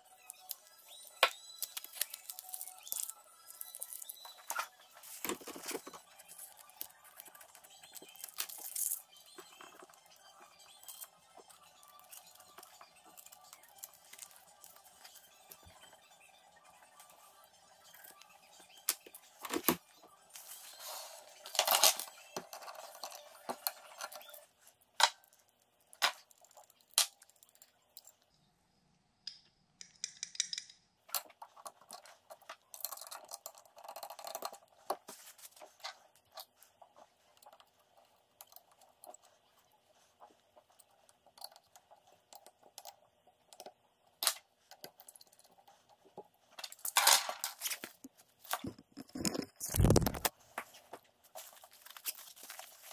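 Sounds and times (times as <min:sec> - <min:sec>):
metal tools clicking and tapping: 0:29.3 - 0:34.8
rustling and crinkling: 0:34.8 - 0:38.1, 0:45.6 - 0:52.9.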